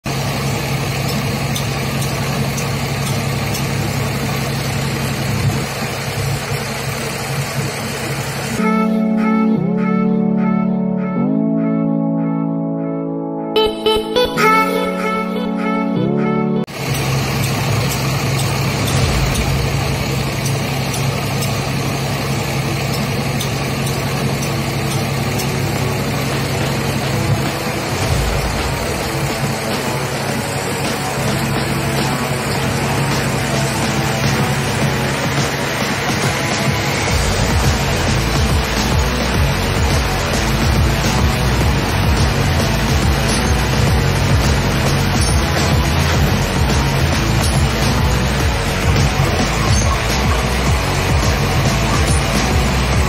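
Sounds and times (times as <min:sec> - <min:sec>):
diesel truck engine idling: 0:00.0 - 0:08.6, 0:16.7 - 0:53.0
music: 0:08.6 - 0:16.8, 0:25.0 - 0:53.0.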